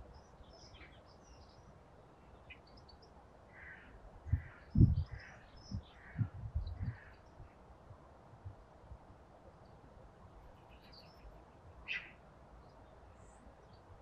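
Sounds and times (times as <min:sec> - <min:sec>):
small birds chirping: 0:00.0 - 0:07.6, 0:10.4 - 0:14.0
crow cawing: 0:03.5 - 0:04.6.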